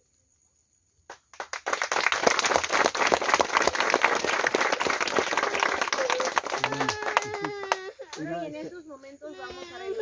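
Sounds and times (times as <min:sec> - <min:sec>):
crowd applauding: 0:01.3 - 0:08.3.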